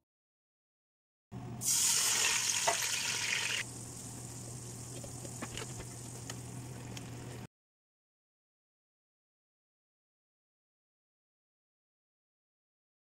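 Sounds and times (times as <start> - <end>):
water hissing in hot oil: 1.6 - 7.4
pot bubbling: 1.6 - 7.5
low steady hum: 3.6 - 7.5.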